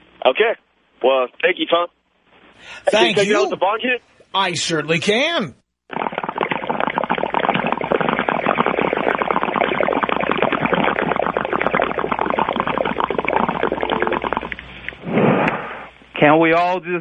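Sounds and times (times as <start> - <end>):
crackling distorted sound effect: 5.9 - 15.9.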